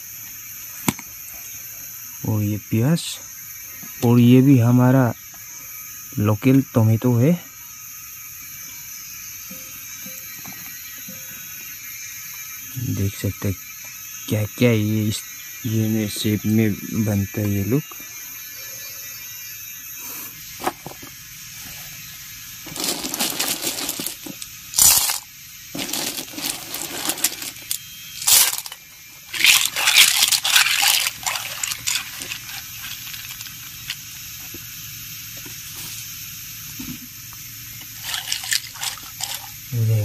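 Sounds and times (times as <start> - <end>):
snail shells clattering: 22.7 - 34.1, 37.8 - 39.7.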